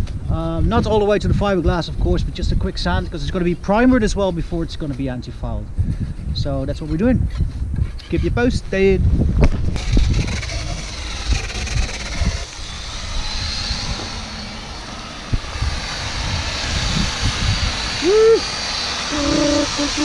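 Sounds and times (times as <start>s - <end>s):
angle grinder sanding hull: 9.8s - 20.0s.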